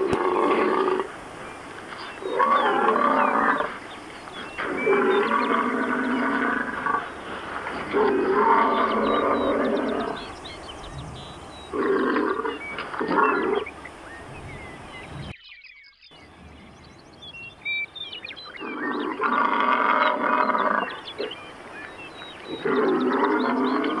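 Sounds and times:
bison bellowing: 0.0 - 1.2, 2.2 - 3.8, 4.5 - 15.3, 18.5 - 21.4, 22.4 - 24.0
small birds chirping: 0.0 - 24.0.

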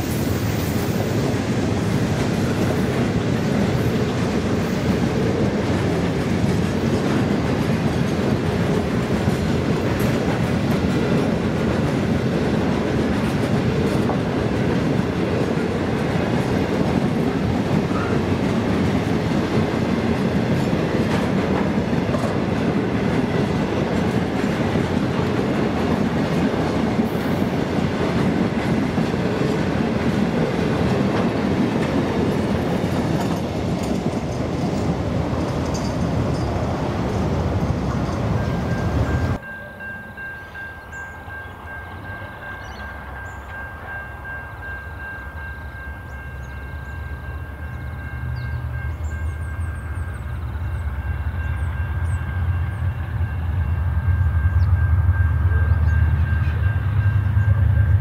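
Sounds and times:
train wheels clattering over rails: 0.0 - 39.4.

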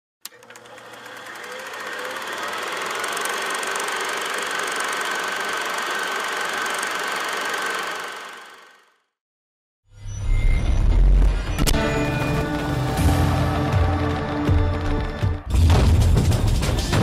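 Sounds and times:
film projector clattering: 0.2 - 8.9.

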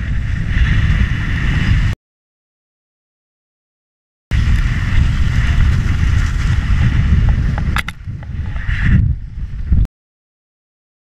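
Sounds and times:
wind rumbling on microphone: 0.0 - 2.0, 4.3 - 9.9.

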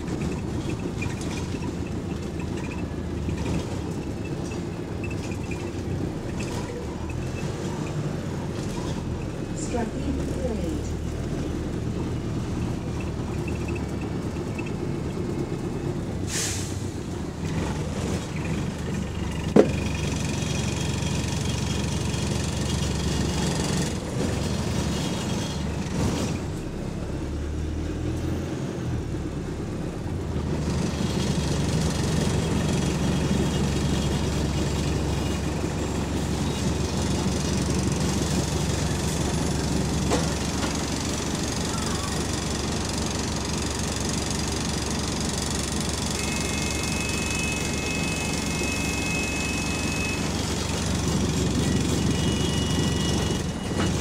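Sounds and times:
bus engine running: 0.0 - 54.0.

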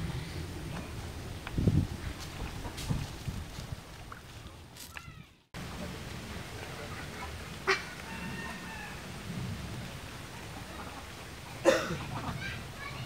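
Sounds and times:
outdoor background noise: 0.0 - 13.0
fowl calling: 6.8 - 9.1.

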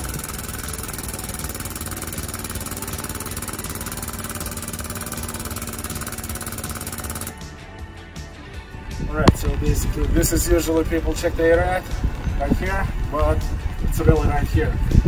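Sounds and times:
pneumatic pump chattering rapidly: 0.0 - 7.4.

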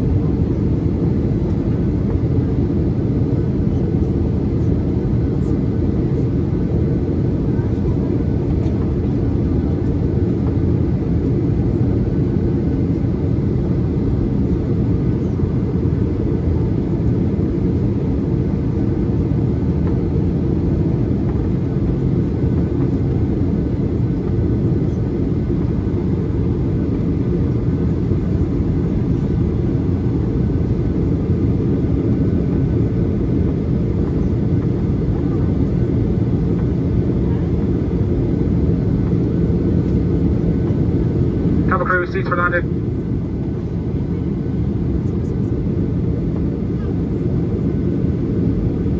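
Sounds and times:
airplane cabin rumble: 0.0 - 48.9.

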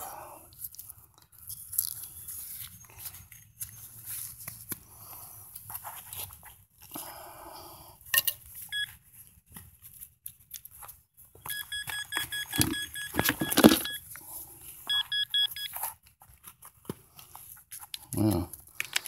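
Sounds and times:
rapid short beeps: 11.5 - 14.0, 14.9 - 15.7.

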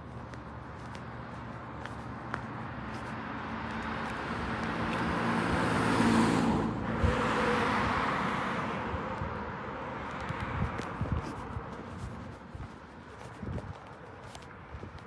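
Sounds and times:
car passing by: 3.2 - 10.8.

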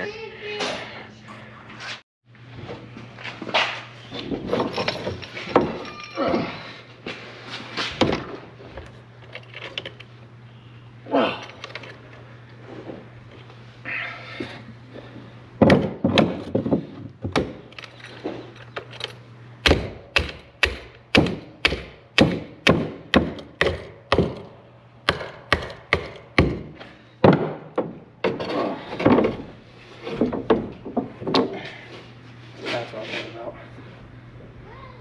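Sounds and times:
sharp knocks and thuds: 15.6 - 17.7, 25.1 - 29.5.

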